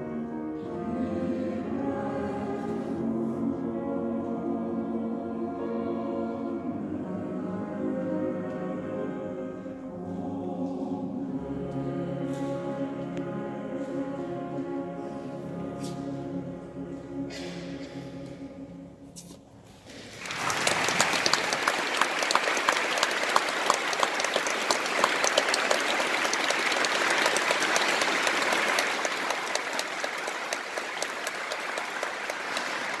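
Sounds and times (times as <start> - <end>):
choir singing chord: 0.0 - 19.2
audience applause: 20.0 - 33.0.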